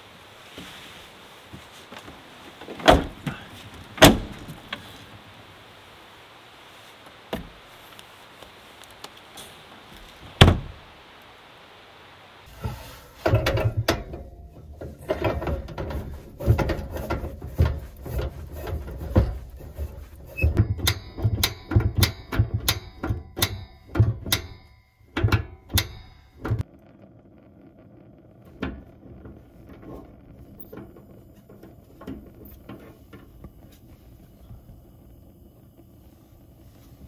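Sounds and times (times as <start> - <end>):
objects knocking and clattering: 12.6 - 26.6.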